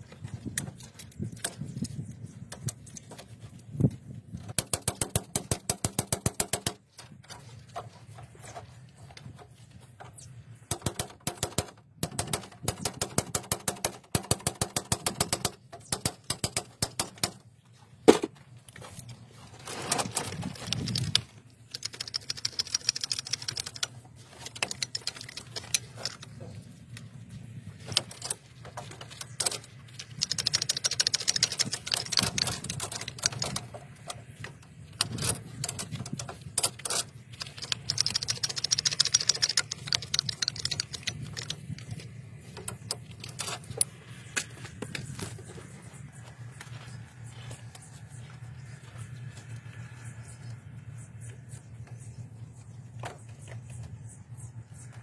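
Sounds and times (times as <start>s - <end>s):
crimping tool metallic clicks: 35.0s - 43.9s.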